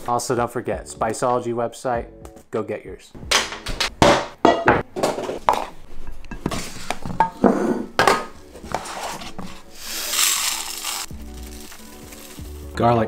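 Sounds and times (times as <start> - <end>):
metal cookware clanking: 4.4 - 8.4.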